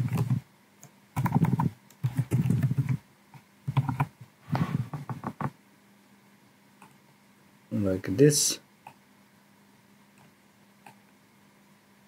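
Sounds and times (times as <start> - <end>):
typing on computer keyboard: 0.0 - 0.4, 1.2 - 3.0, 3.7 - 4.1.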